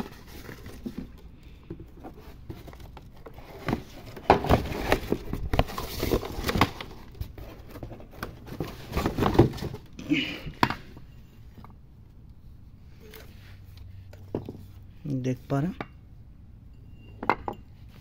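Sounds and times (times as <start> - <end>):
cardboard and paper rustling: 0.0 - 10.9.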